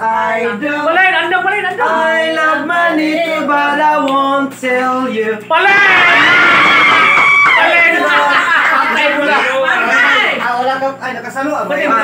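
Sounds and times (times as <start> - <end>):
man singing: 0.0 - 5.9.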